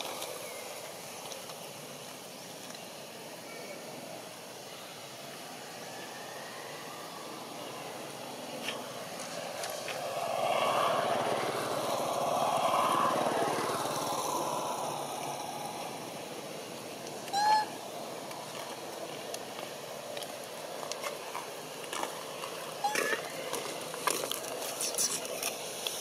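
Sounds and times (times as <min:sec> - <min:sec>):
passing motor vehicle: 0:05.6 - 0:25.3
short squeaky call: 0:22.8 - 0:23.2.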